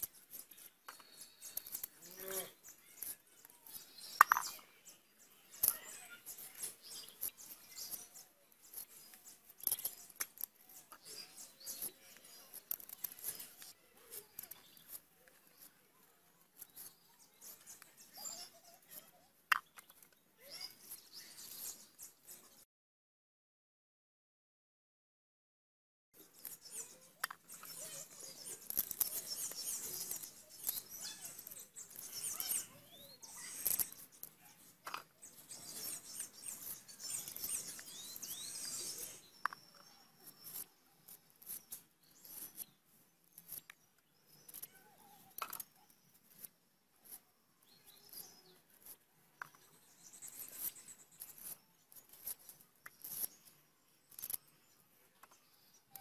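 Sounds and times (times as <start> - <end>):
knife clicking and scraping pods: 0.0 - 4.6, 8.6 - 15.7, 26.4 - 42.7, 43.3 - 47.2, 48.0 - 54.5
birds chirping: 0.0 - 22.6, 26.2 - 56.0.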